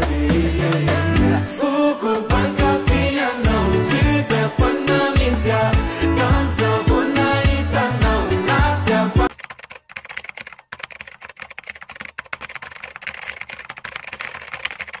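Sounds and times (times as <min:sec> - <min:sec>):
music: 0:00.0 - 0:09.3
keyboard typing clicks: 0:09.2 - 0:15.0.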